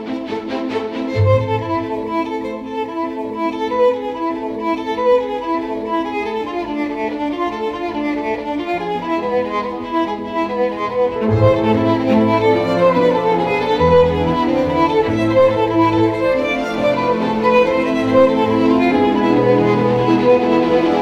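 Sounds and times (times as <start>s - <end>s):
held string notes: 0.0s - 21.0s
violin melody: 0.0s - 21.0s.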